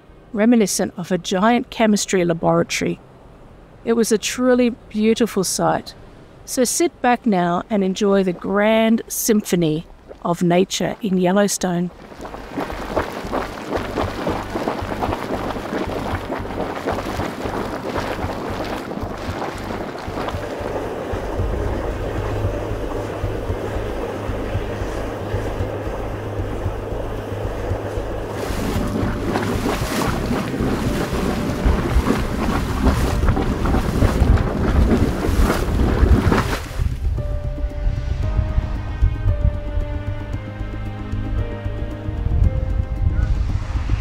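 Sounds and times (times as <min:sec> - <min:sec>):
wind rumbling on microphone: 0:07.6 - 0:44.0
mud bubbling and popping: 0:07.8 - 0:37.3.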